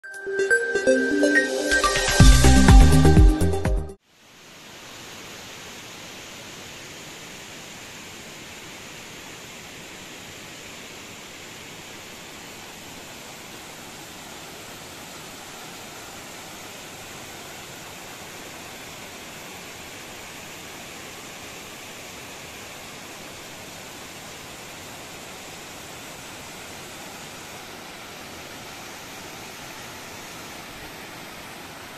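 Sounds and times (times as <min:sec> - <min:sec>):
electronic intro music: 0:00.0 - 0:04.0.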